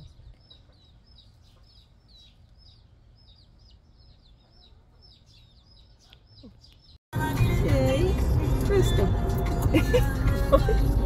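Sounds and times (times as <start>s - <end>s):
chickens chirping: 0.0s - 7.0s.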